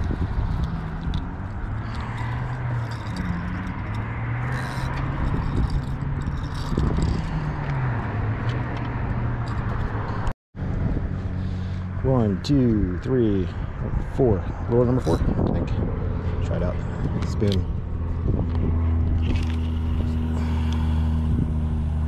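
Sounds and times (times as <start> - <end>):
wind: 0.0 - 22.0
motor engine humming: 13.5 - 22.0.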